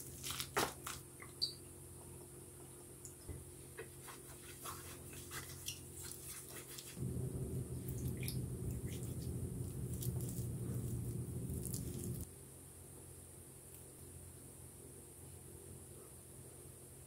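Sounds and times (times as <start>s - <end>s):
low steady hum: 1.1s - 16.9s
wet hands squishing food: 4.0s - 12.3s.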